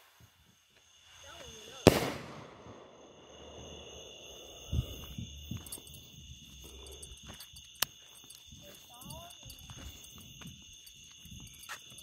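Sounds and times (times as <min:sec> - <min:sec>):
night insects chirring: 0:00.0 - 0:12.0
firework burst rumbling: 0:01.6 - 0:05.4.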